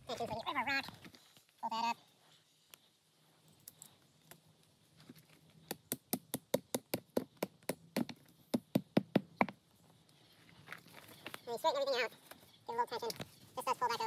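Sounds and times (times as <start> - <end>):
rock hammering tent stake: 5.7 - 9.6.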